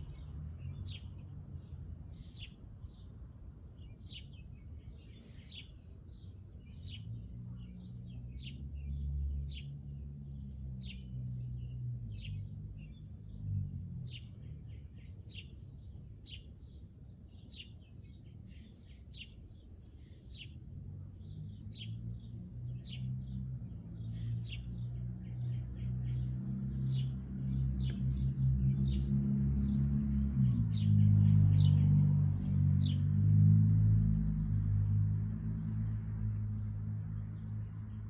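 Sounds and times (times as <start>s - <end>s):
birds chirping: 14.1s - 31.9s.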